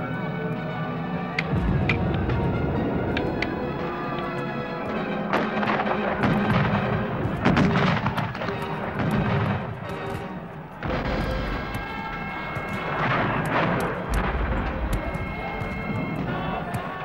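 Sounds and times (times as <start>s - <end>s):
background music: 0.0s - 17.0s
musket shots: 1.4s - 17.0s
cannon firing: 1.5s - 17.0s.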